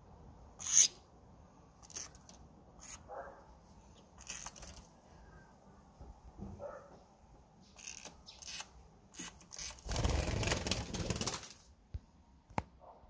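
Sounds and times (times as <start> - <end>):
bird wings flapping: 9.5 - 11.7.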